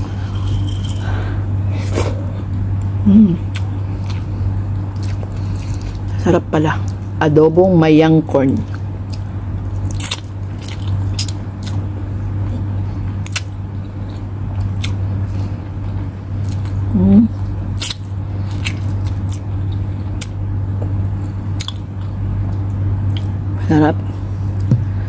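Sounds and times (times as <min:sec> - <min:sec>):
person chewing: 0:00.0 - 0:06.2, 0:08.7 - 0:23.4
steady low hum: 0:00.0 - 0:25.0
person humming: 0:03.0 - 0:03.6, 0:16.9 - 0:17.3
lip smacks: 0:03.5 - 0:03.7.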